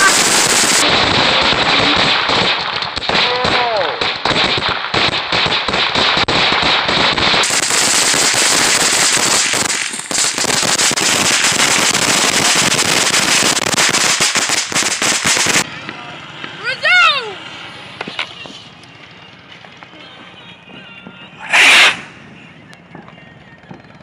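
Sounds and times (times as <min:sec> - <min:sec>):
fireworks crackling hiss: 0:00.0 - 0:15.7, 0:21.4 - 0:22.3.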